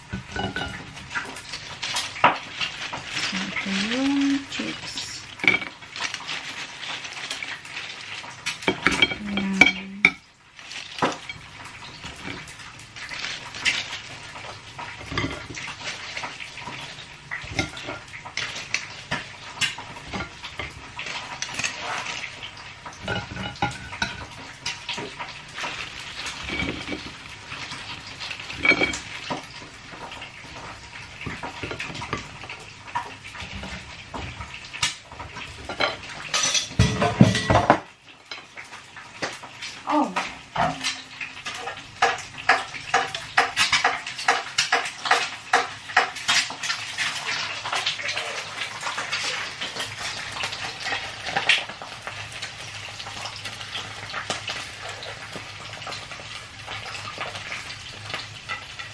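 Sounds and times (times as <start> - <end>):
wire fry basket clattering: 0.0 - 10.2, 10.8 - 30.1, 33.0 - 37.8.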